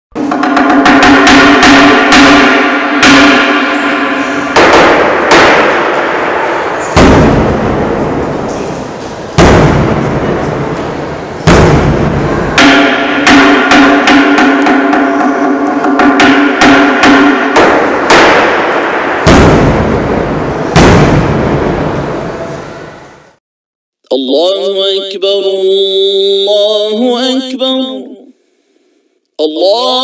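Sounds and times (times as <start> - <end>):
deep drum strokes: 0.2 - 22.7.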